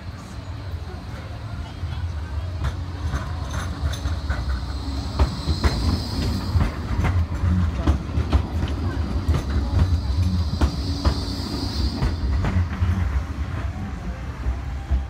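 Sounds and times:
tram rumble: 0:00.0 - 0:15.0
wheels clicking over track: 0:02.4 - 0:13.8
high wheel squeal: 0:03.4 - 0:08.0, 0:08.6 - 0:13.2.

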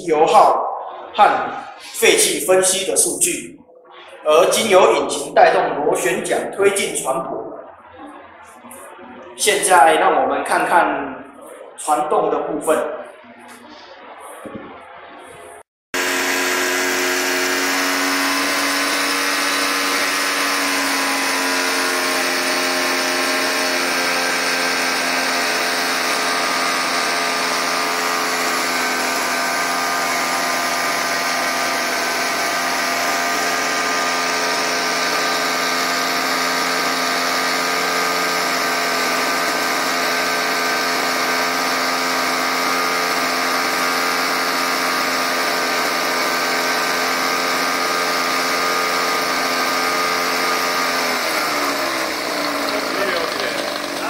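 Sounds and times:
two-stroke engine running: 0:16.0 - 0:54.0.

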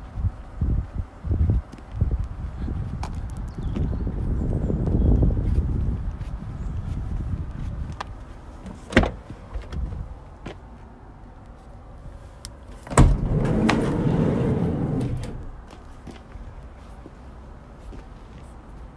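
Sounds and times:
sliding door rolling on track: 0:12.9 - 0:15.6
sliding van door clunk: 0:12.9 - 0:15.7.

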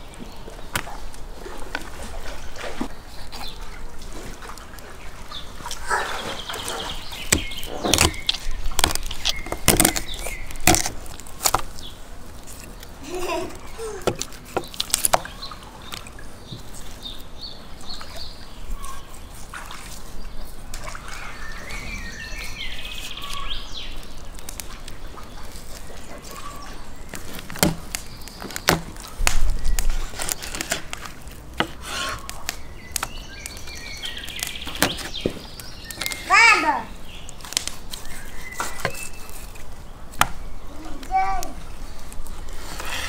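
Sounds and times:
faint birds chirping: 0:00.0 - 0:43.0
wet cutting of raw meat: 0:05.7 - 0:11.8, 0:22.4 - 0:36.3.

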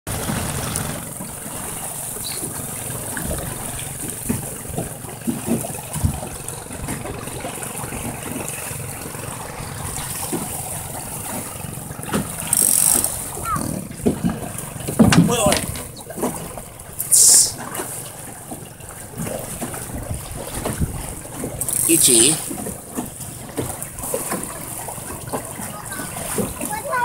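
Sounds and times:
small splashes: 0:00.1 - 0:27.0
water rushing along hull: 0:00.1 - 0:27.0
knocks: 0:14.9 - 0:15.9
wind rumbling on microphone: 0:19.8 - 0:21.6.

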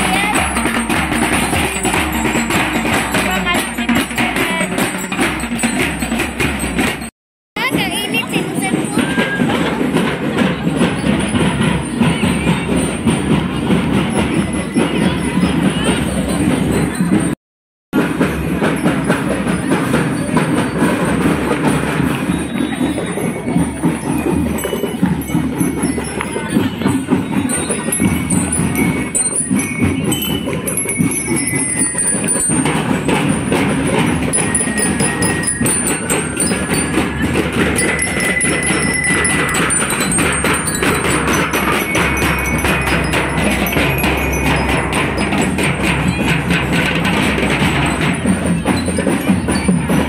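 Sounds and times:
bright ringing bell-like notes: 0:00.0 - 0:07.1, 0:18.8 - 0:50.0
drums beating steadily: 0:00.0 - 0:50.0.

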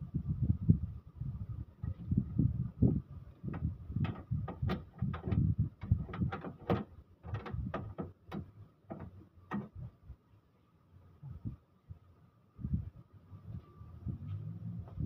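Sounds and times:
hand tool clicking on a fastener: 0:03.5 - 0:09.8.

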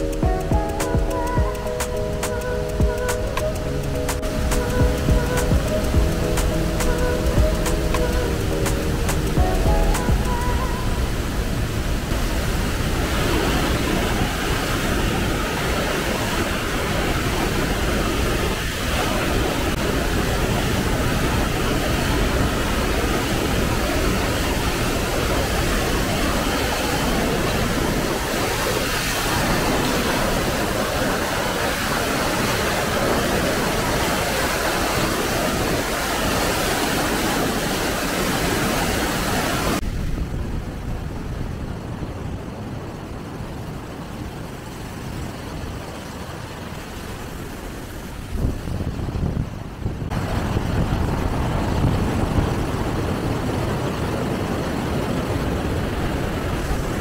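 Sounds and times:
waterfall rushing and splashing: 0:00.0 - 0:40.1, 0:55.4 - 0:57.0.

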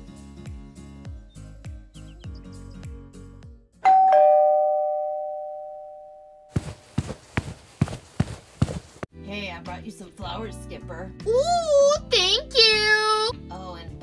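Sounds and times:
two-note doorbell chime: 0:03.8 - 0:06.5.

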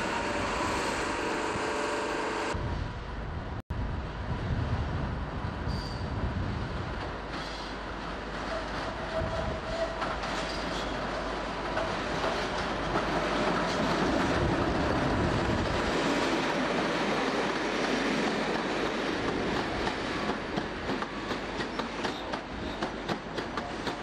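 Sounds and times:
train rumbling past: 0:00.0 - 0:24.0
wheels clacking over rail joints: 0:07.0 - 0:24.0.

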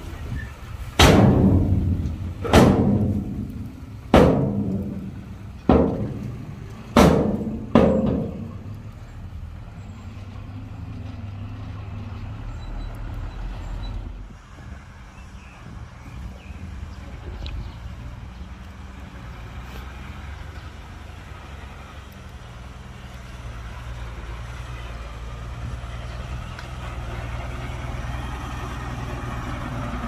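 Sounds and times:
diesel engine running: 0:00.0 - 0:30.0
loud ringing bangs: 0:01.0 - 0:08.8.

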